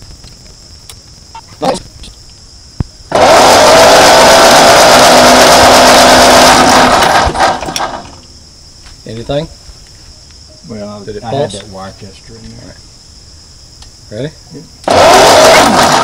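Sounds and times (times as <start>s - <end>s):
tractor engine cranking: 3.1s - 8.2s, 14.8s - 16.0s.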